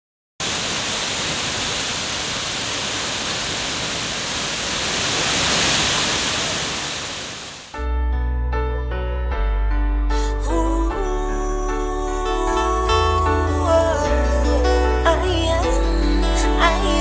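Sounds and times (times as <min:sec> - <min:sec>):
steady rushing noise: 0:00.4 - 0:07.8
sustained chords over deep bass: 0:08.0 - 0:17.0.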